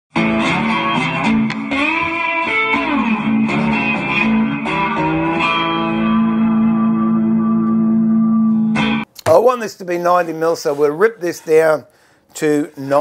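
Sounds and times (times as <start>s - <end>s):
electric guitar playing: 0.1s - 9.1s.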